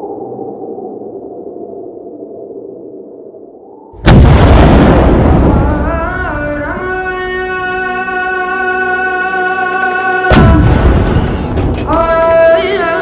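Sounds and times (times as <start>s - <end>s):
loud explosion boom: 4.0s - 7.0s, 10.3s - 11.9s.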